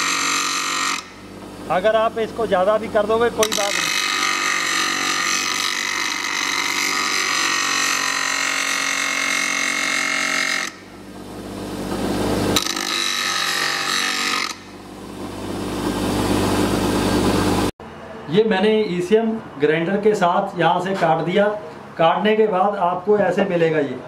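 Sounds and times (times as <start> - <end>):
grinder wheel grinding metal: 0.0 - 1.3, 3.4 - 11.0, 11.9 - 14.8
grinder motor hum: 0.0 - 17.7.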